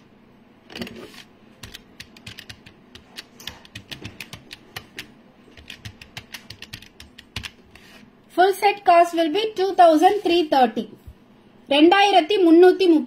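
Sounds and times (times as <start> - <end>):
typing on keyboard: 1.6 - 7.6.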